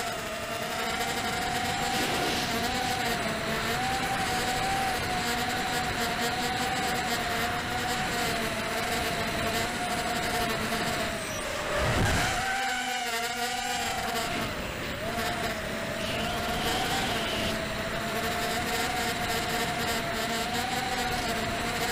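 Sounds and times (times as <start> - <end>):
quadcopter motors whining: 0.0 - 21.9
wind rush: 1.6 - 3.4.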